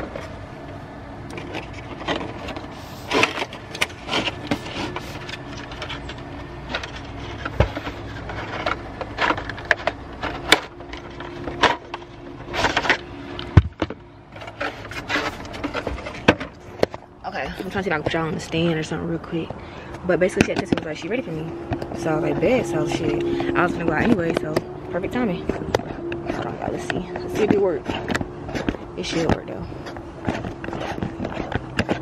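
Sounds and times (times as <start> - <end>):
faint steady hum: 0.0 - 32.0
packaging rustling and scraping: 1.3 - 32.0
sharp thumps: 13.5 - 14.5.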